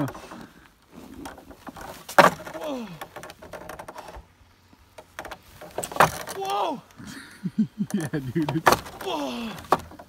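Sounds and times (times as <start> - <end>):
person grunting: 2.6 - 3.0, 9.0 - 9.6
bar knocking on wooden rungs: 5.0 - 6.6, 7.9 - 10.0.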